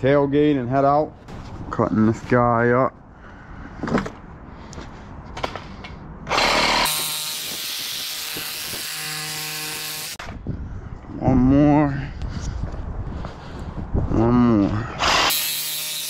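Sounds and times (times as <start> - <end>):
power tool cutting metal: 6.3 - 10.2, 15.0 - 16.0.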